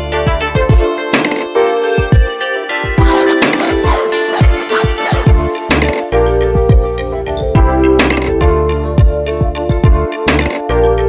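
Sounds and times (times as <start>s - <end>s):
held synth chords: 2.8s - 8.6s
deep bass kick drums: 3.8s - 10.1s.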